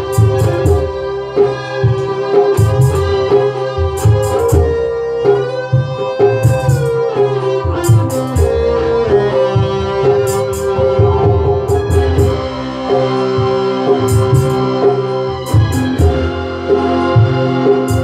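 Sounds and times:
hand drum beats with slaps: 0:00.0 - 0:01.0, 0:01.9 - 0:03.2, 0:09.6 - 0:12.4
electric bass line: 0:00.0 - 0:18.0
keyboard melodic lead: 0:00.0 - 0:18.0.

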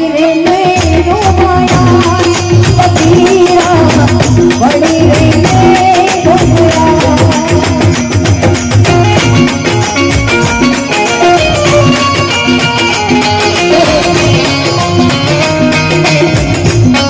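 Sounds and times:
woman singing: 0:00.0 - 0:08.4, 0:10.8 - 0:15.1
hand drum rhythm: 0:00.0 - 0:17.0
harmonium: 0:00.0 - 0:17.0
small hand cymbals: 0:01.7 - 0:17.0.

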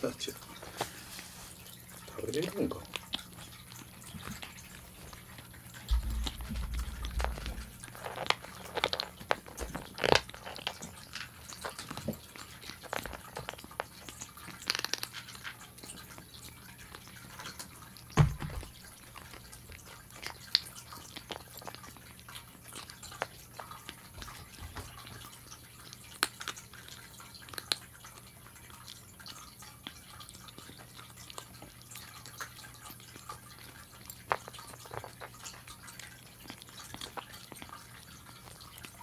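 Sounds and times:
kittens crunching kibble: 0:00.0 - 0:39.0
kibble clicking against bowls: 0:02.0 - 0:39.0
thump: 0:05.9 - 0:07.8, 0:18.2 - 0:18.7.

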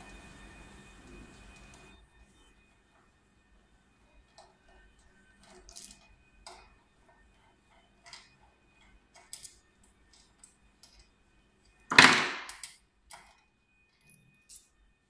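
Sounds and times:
allen key clicks and scrapes: 0:05.3 - 0:06.6, 0:08.0 - 0:11.1.

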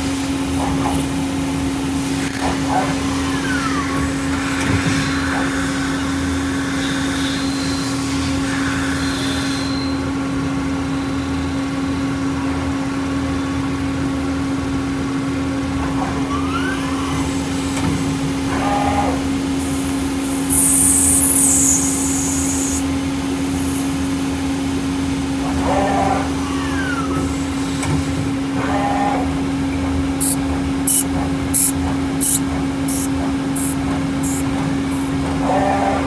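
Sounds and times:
gliding machine whine: 0:16.9 - 0:28.1, 0:29.9 - 0:36.0
lathe machine hum: 0:17.2 - 0:26.5, 0:29.2 - 0:35.9
machine hiss: 0:19.3 - 0:24.2, 0:30.2 - 0:35.2.

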